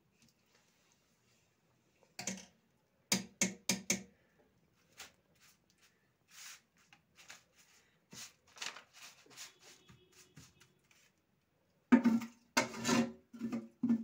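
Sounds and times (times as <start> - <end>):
metal skimmer scraping fried onions: 12.0 - 14.0.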